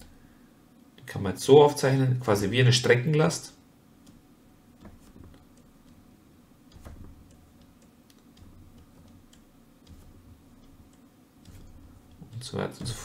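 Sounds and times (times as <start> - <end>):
low background hum: 0.0 - 13.0
stylus tapping on tablet: 6.6 - 13.0.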